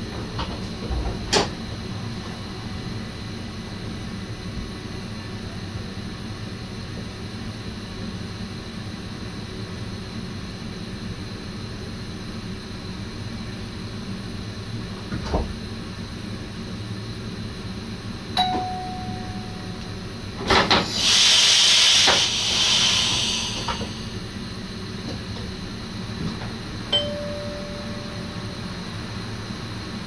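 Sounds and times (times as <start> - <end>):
train cab low rumble: 0.0 - 30.0
compressed air hiss: 20.6 - 24.2
short single-pitch beep: 27.0 - 28.8.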